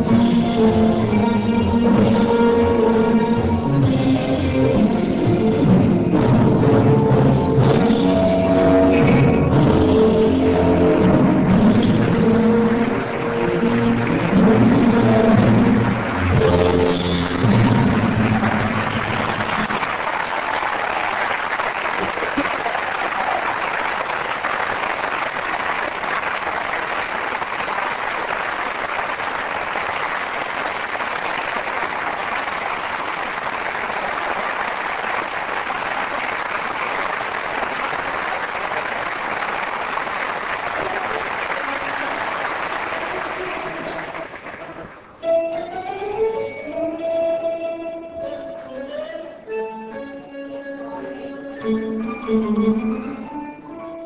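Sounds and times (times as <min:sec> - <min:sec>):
audience applauding: 0:09.7 - 0:45.2.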